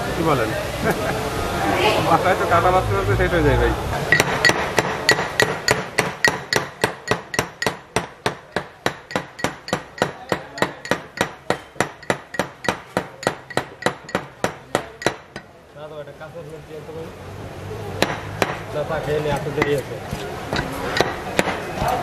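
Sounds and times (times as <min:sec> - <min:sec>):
pestle pounding in iron mortar: 0:04.1 - 0:15.5, 0:18.0 - 0:18.6, 0:19.2 - 0:22.0.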